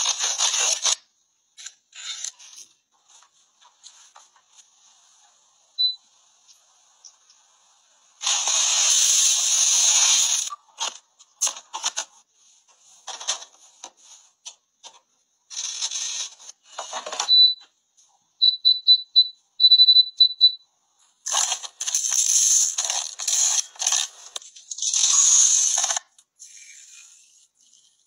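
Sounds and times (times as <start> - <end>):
clicks and scrapes: 0.0 - 5.4, 8.2 - 17.4, 21.2 - 28.0
loud hiss: 8.2 - 10.5
short high electronic beeps: 18.4 - 20.6.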